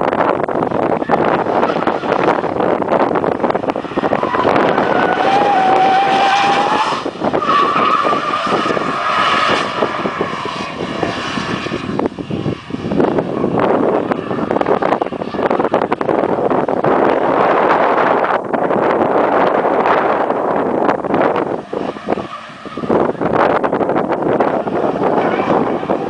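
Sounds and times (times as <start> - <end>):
car engine running hard: 0.0 - 26.0
tyres squealing: 3.9 - 9.3.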